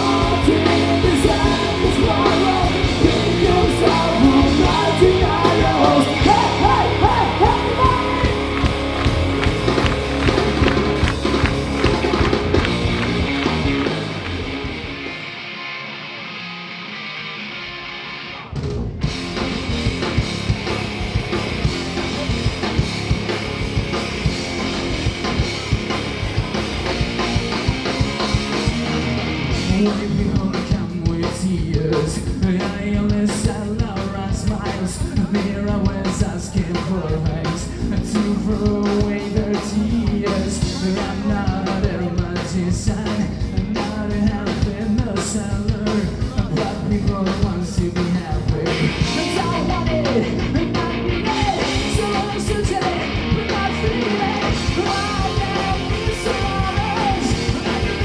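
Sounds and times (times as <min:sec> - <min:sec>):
man singing: 0:00.0 - 0:08.6, 0:29.5 - 0:58.0
live rock band playing: 0:00.0 - 0:58.0.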